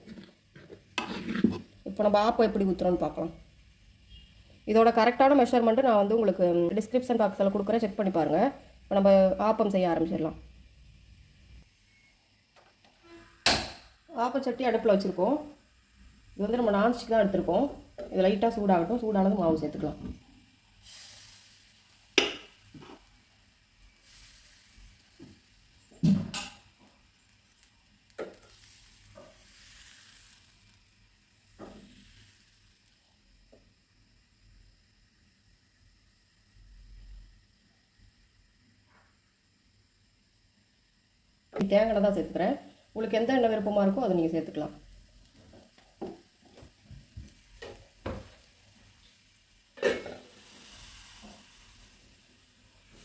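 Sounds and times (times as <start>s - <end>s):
batter sizzling in pan: 0.0s - 53.0s
metal lid clanking on pan: 49.8s - 50.2s.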